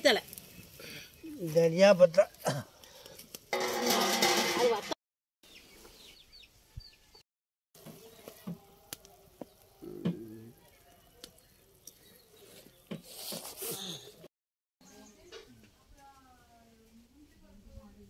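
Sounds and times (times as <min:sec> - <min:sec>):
small birds chirping: 0:00.0 - 0:03.2, 0:05.4 - 0:07.2, 0:07.8 - 0:14.2, 0:14.8 - 0:15.8.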